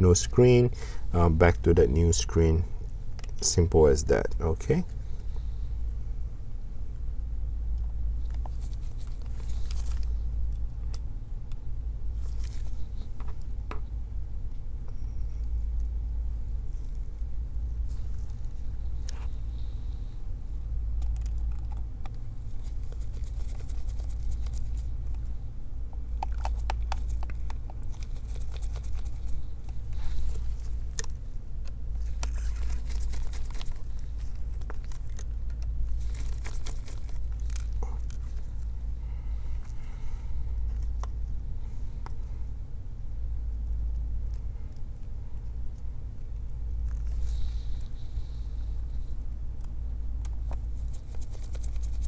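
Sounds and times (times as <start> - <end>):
steady low rumble: 0.0 - 52.0.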